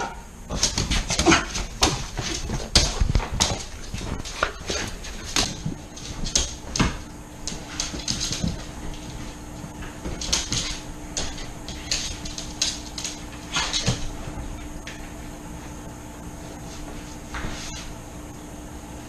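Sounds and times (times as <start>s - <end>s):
dog claws on hardwood floor: 0.5s - 15.1s.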